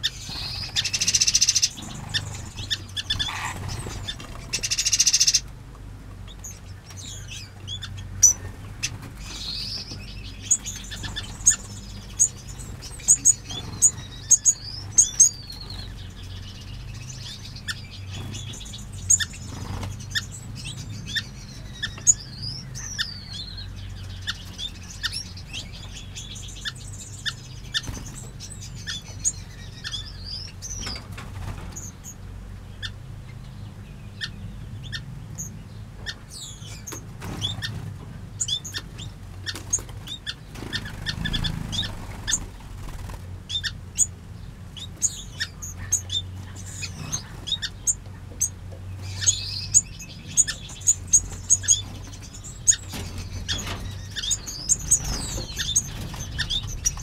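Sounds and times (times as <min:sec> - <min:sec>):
wings fluttering: 0:00.0 - 0:05.5, 0:08.3 - 0:21.0, 0:27.5 - 0:28.5, 0:36.7 - 0:43.6, 0:50.4 - 0:57.0
birds chirping: 0:00.0 - 0:57.0.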